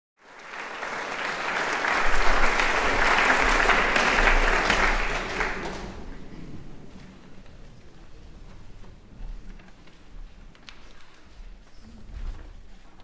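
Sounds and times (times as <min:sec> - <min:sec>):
audience applauding: 0:00.2 - 0:07.8.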